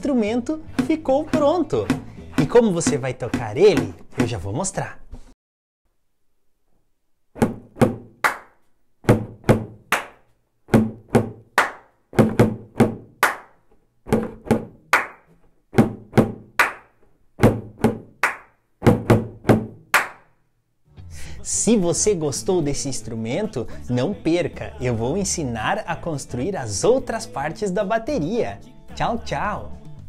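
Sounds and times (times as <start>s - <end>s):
plastic jug drum knocks: 7.4s - 8.2s, 9.0s - 9.9s, 10.7s - 11.4s, 12.2s - 13.2s, 14.1s - 14.8s, 15.7s - 16.6s, 17.4s - 18.2s, 18.8s - 19.8s.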